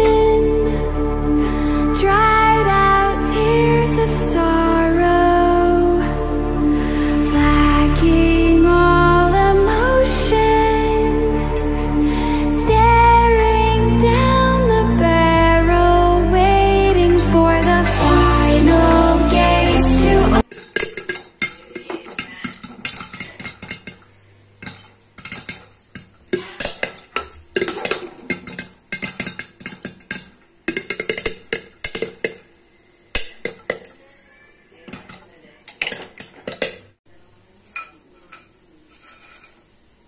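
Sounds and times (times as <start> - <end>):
popcorn popping in metal pot: 20.4 - 34.0, 34.9 - 37.0.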